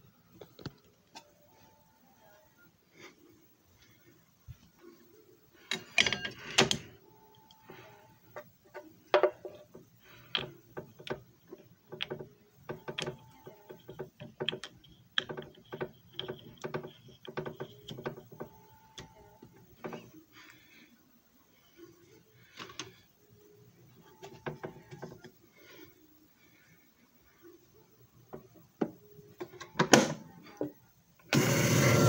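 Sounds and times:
plastic clicks and knocks: 0:08.7 - 0:20.1.

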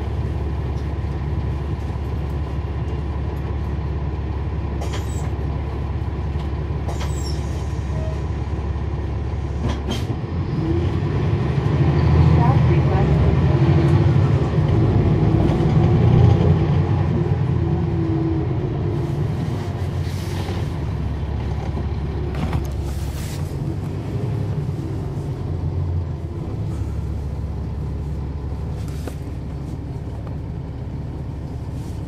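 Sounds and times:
bus diesel engine idling: 0:00.0 - 0:32.0.

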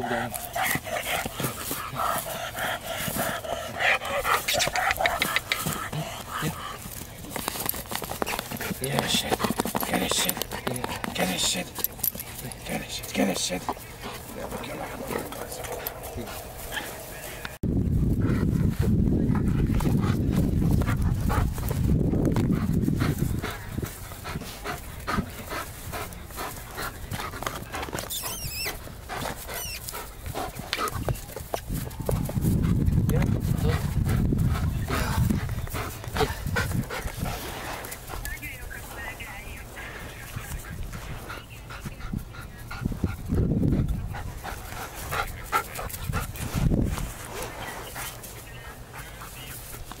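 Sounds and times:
dog panting: 0:00.0 - 0:50.0
dog whining: 0:28.0 - 0:28.8, 0:29.5 - 0:29.8
high-pitched squeaks: 0:28.1 - 0:28.8, 0:29.5 - 0:29.8.

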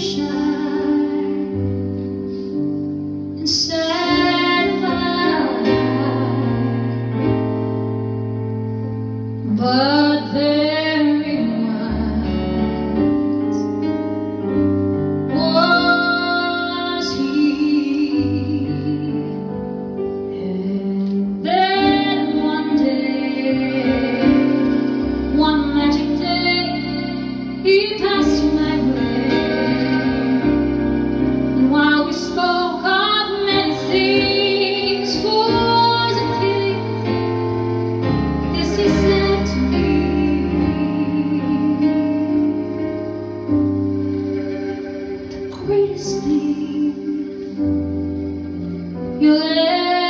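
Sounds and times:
violin: 0:00.0 - 0:50.0
woman singing with vibrato: 0:03.4 - 0:07.5, 0:09.5 - 0:13.7, 0:15.3 - 0:19.4, 0:20.4 - 0:30.8, 0:31.6 - 0:37.4, 0:38.2 - 0:43.4, 0:45.3 - 0:47.6.

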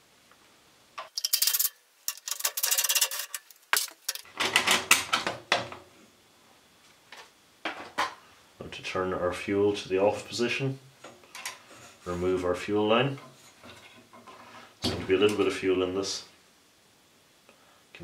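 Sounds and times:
metal parts clattering: 0:01.0 - 0:04.3.

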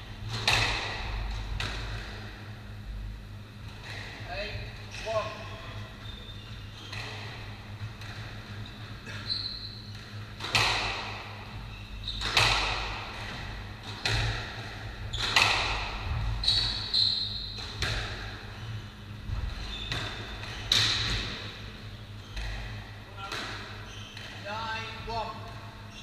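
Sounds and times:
squash ball hitting walls: 0:00.2 - 0:02.4, 0:06.8 - 0:09.2, 0:09.9 - 0:18.5, 0:19.2 - 0:21.7, 0:22.3 - 0:24.4
shoe squeaks on wooden floor: 0:05.4 - 0:07.4, 0:08.6 - 0:09.9, 0:11.6 - 0:12.4, 0:16.4 - 0:17.7, 0:19.5 - 0:20.7, 0:21.9 - 0:24.7.

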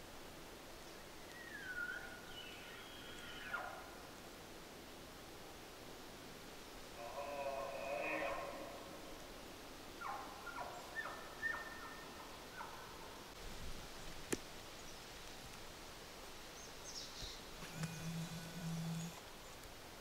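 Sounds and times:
faint forest ambience: 0:00.0 - 0:20.0
chirping animal calls: 0:07.0 - 0:09.2, 0:10.0 - 0:13.3, 0:17.6 - 0:19.2.

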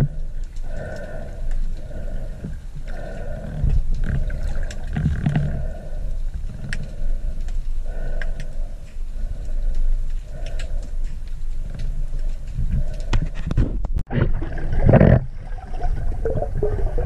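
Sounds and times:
underwater rushing water rumble: 0:14.1 - 0:17.0.

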